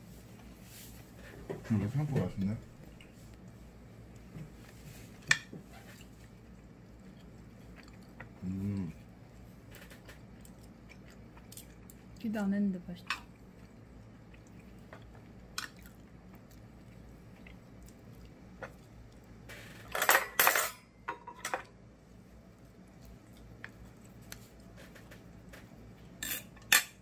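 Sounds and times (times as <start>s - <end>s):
cutlery clinking on a plate: 19.9s - 21.7s, 26.2s - 27.0s.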